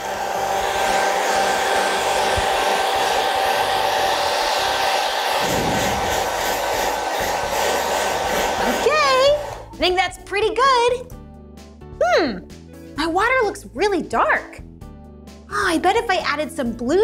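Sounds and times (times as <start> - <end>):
hair dryer running: 0.0 - 9.9.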